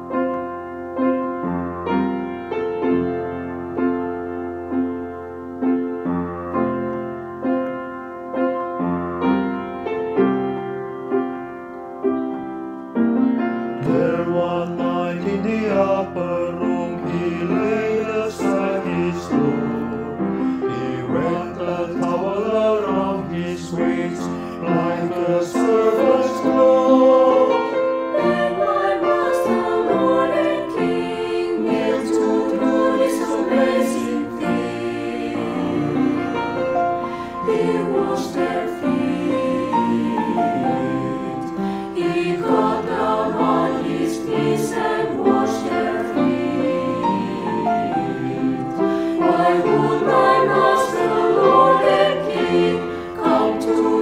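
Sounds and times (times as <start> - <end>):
piano accompaniment: 0.0 - 54.0
men's choir singing: 13.8 - 54.0.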